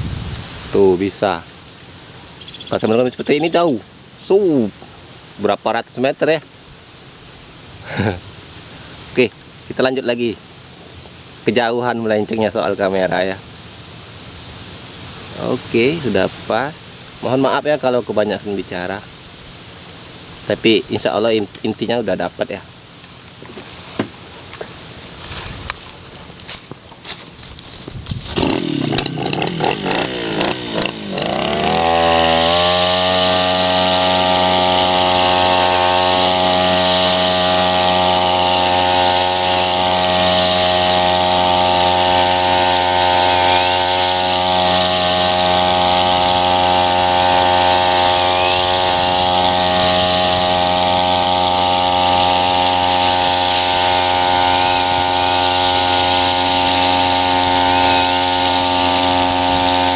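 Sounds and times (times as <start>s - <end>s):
trimmer cutting grass: 7.8s - 8.3s, 23.2s - 59.9s
brush cutter engine revving: 20.8s - 59.9s.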